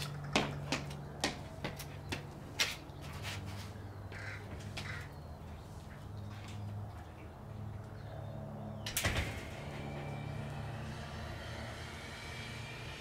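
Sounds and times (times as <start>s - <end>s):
footsteps on concrete: 0.0s - 7.2s
steady low hum: 0.0s - 13.0s
harsh bird-like calls: 3.0s - 5.9s.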